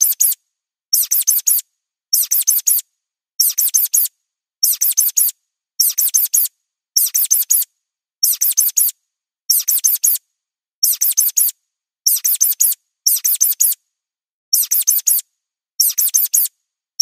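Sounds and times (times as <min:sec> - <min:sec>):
high thin mouse squeaks: 0:00.0 - 0:00.4, 0:01.0 - 0:01.6, 0:02.2 - 0:02.8, 0:03.4 - 0:10.2, 0:10.8 - 0:13.8, 0:14.5 - 0:15.2, 0:15.8 - 0:16.5.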